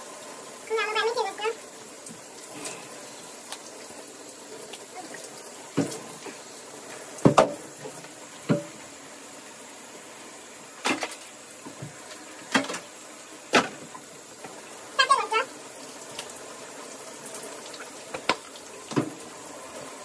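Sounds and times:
shower water running: 0:00.0 - 0:20.0
sharp knocks and thumps: 0:07.2 - 0:07.6, 0:08.4 - 0:08.7.

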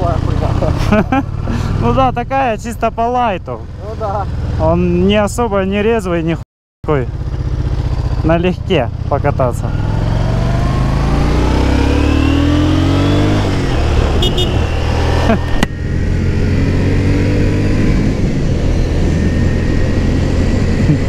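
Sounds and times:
motorcycle engine accelerating: 0:00.0 - 0:06.2, 0:06.9 - 0:21.0.

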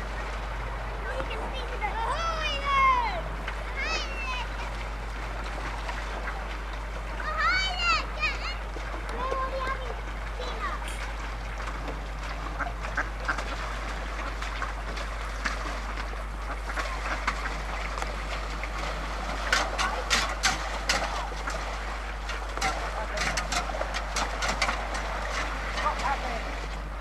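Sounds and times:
ducks quacking: 0:05.6 - 0:06.6, 0:12.3 - 0:18.0.

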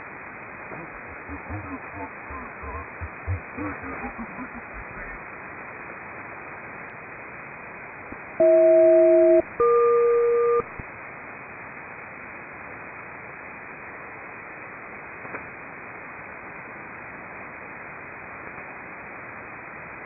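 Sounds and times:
radio receiver static: 0:00.7 - 0:05.5.

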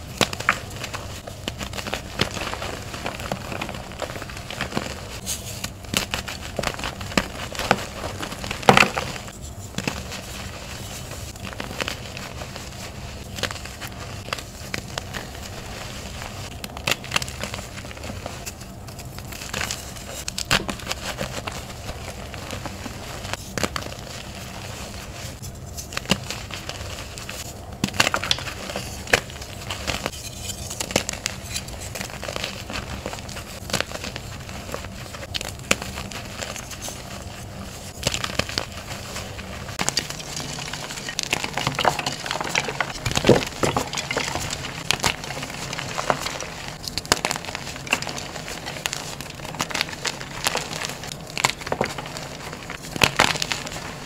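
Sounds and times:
chalk crunching: 0:24.9 - 0:53.9.

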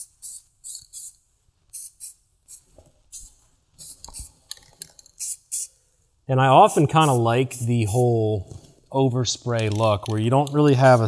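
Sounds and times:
spray paint can hissing: 0:00.0 - 0:04.4, 0:05.2 - 0:05.7, 0:10.1 - 0:11.0.

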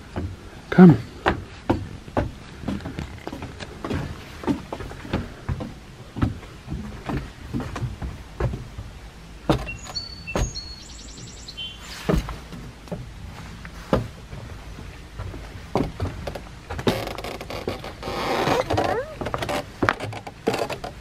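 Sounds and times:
low wind rumble: 0:00.0 - 0:21.0
short bird chirps: 0:09.7 - 0:12.0.

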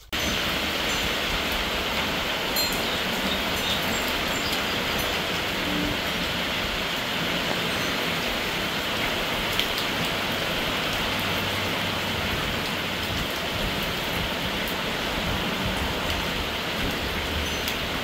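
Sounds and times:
rain hissing on patio: 0:00.0 - 0:18.0
raindrop taps: 0:09.4 - 0:10.2.

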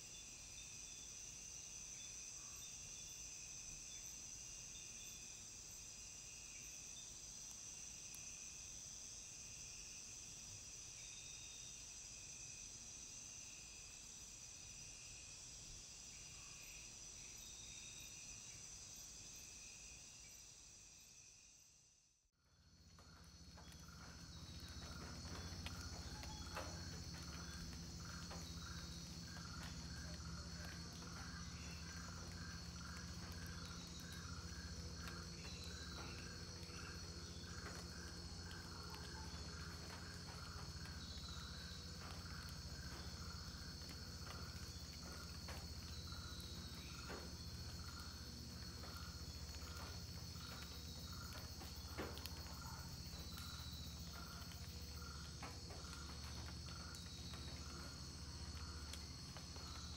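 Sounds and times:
high-pitched insect drone: 0:23.0 - 0:59.9.

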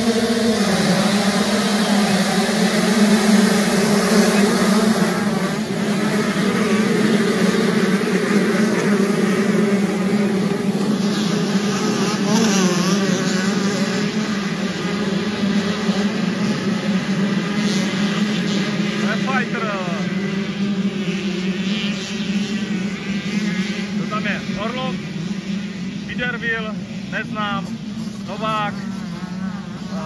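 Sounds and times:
motorcycle engines at high revs: 0:00.0 - 0:30.0.

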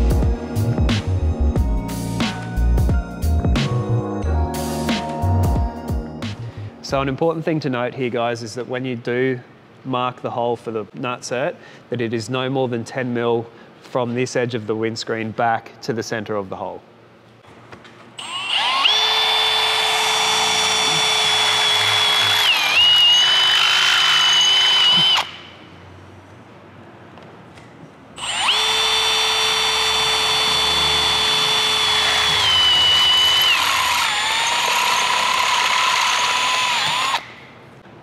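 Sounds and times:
cordless drill boring metal: 0:18.2 - 0:25.5, 0:28.2 - 0:37.4.

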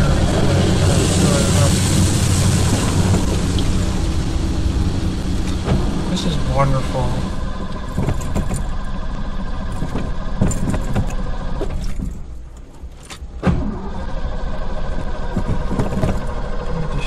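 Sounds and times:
water hitting windshield: 0:00.0 - 0:08.8
car wash machinery running: 0:00.0 - 0:12.4, 0:13.4 - 0:17.0
water spraying on car: 0:00.0 - 0:12.5
knocks and rattles: 0:05.4 - 0:13.7, 0:15.0 - 0:16.7.

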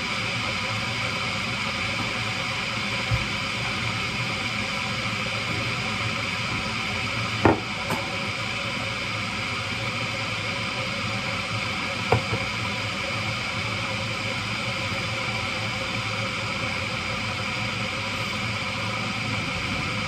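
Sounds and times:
electric kettle heating up: 0:00.0 - 0:20.0.

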